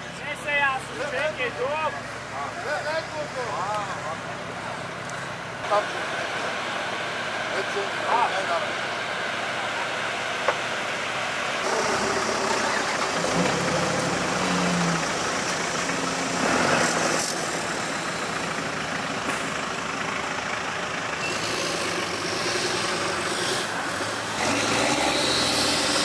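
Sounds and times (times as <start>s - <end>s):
engines idling: 0.0s - 26.0s
outdoor hiss: 4.6s - 24.7s.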